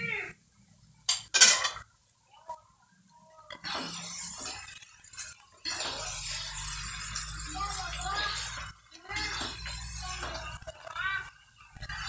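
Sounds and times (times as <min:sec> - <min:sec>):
metal spatula scraping a wok: 0:03.5 - 0:10.7.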